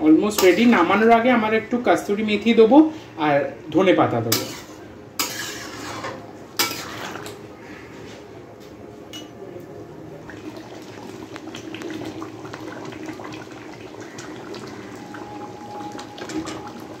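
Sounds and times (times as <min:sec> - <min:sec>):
curry bubbling and popping: 0:10.2 - 0:17.0.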